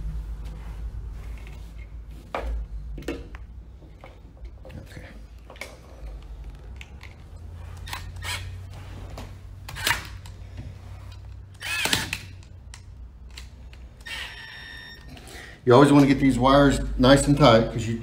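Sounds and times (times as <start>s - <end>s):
electric screwdriver whining: 7.8s - 8.6s, 11.5s - 12.4s, 14.0s - 15.1s.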